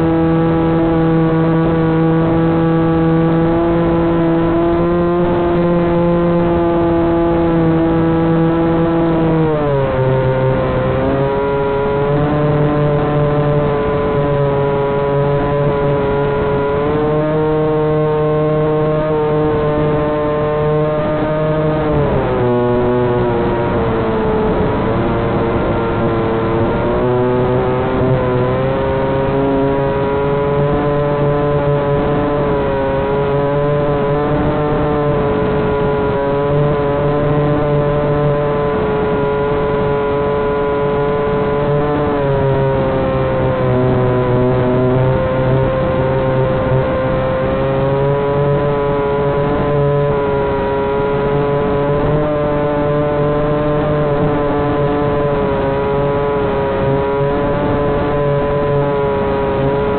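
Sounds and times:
low hum: 0:00.0 - 0:59.9.

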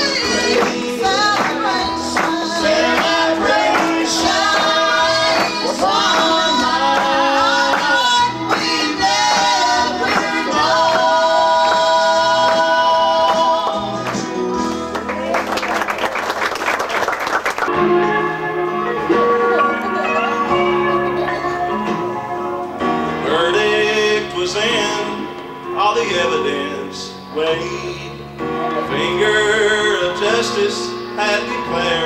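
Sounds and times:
woman singing gospel song: 0:00.0 - 0:14.2
instrumental accompaniment: 0:17.7 - 0:32.0.

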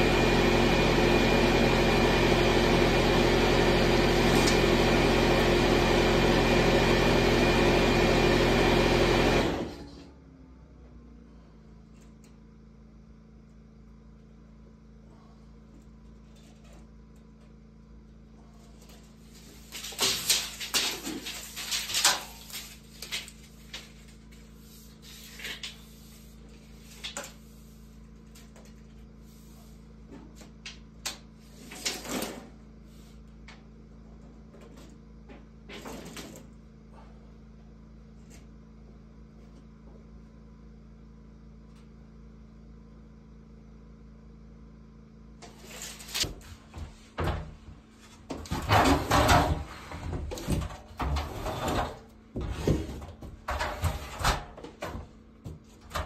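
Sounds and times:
steady low hum: 0:09.8 - 0:31.8.

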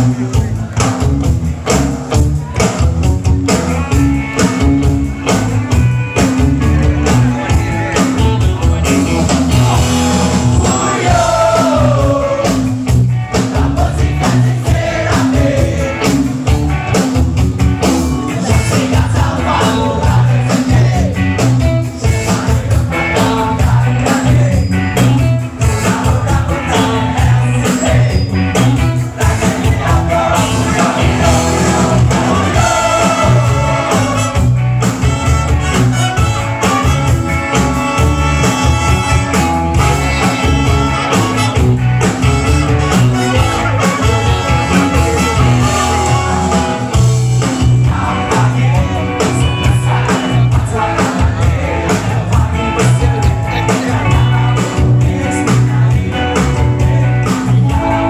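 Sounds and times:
bass: 0:00.0 - 0:58.0
drums on steady beat: 0:00.0 - 0:58.0
electric guitars: 0:00.0 - 0:58.0
person singing: 0:29.2 - 0:34.3, 0:47.6 - 0:58.0.

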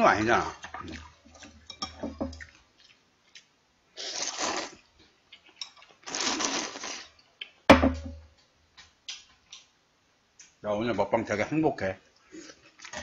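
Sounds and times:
slurping noodles and broth: 0:04.0 - 0:04.9, 0:06.0 - 0:07.2
sharp loud knock: 0:07.7 - 0:08.2.

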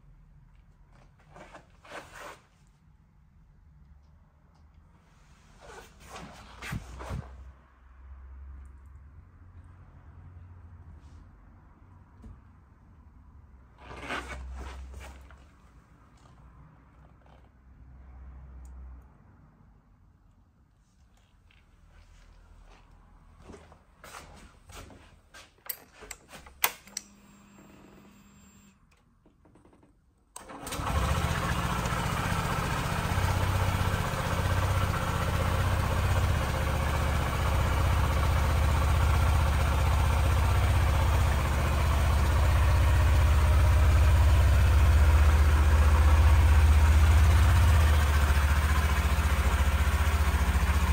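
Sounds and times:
clicks: 0:25.7 - 0:27.2
motorcycle engine starting and idling: 0:29.4 - 0:50.9.

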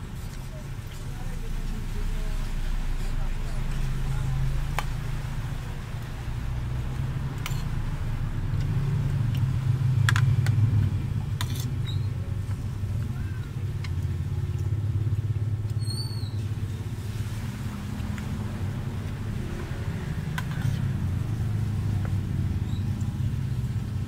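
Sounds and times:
steady low rumble: 0:00.0 - 0:15.7.

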